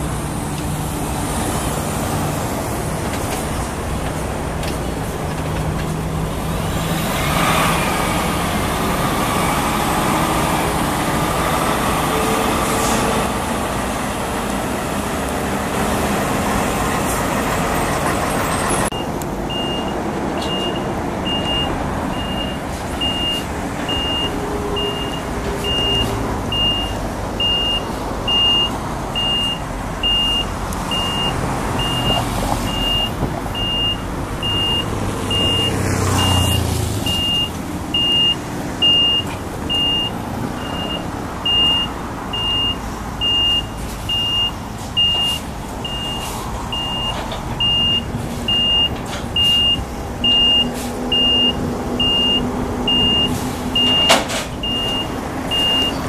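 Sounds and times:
truck reversing alarm beeping: 18.3s - 56.0s.

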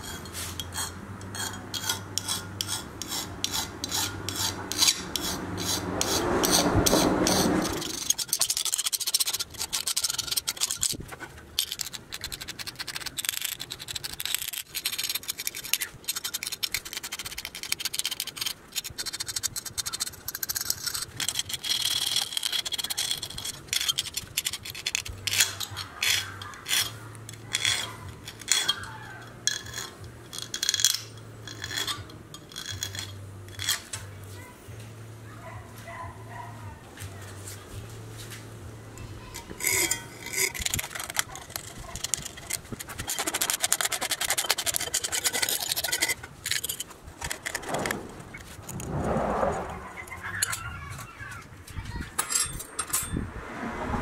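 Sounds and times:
hand file rasping on metal: 0.0s - 11.0s, 11.6s - 33.9s, 39.4s - 48.0s.

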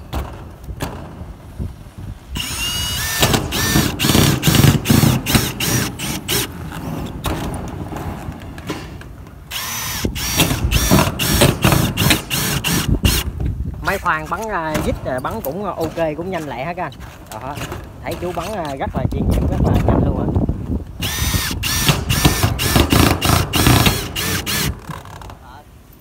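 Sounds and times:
screw gun motor whine: 2.4s - 6.5s, 9.5s - 13.3s, 21.0s - 25.0s.

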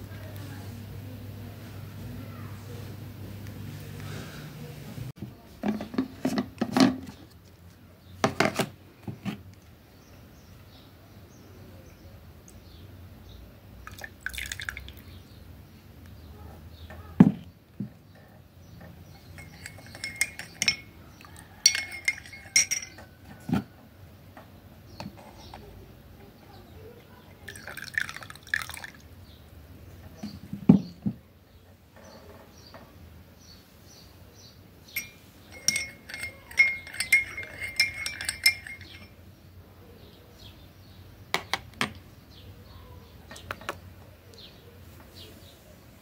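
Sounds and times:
teaspoon clinking against cup: 19.2s - 23.1s, 34.9s - 39.2s.

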